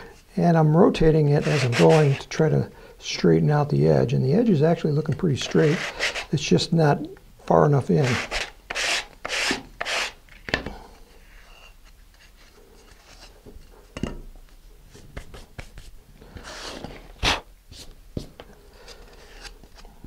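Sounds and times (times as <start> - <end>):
sandpaper rubbing plastic: 1.4 - 2.3, 5.4 - 6.3, 8.0 - 10.2.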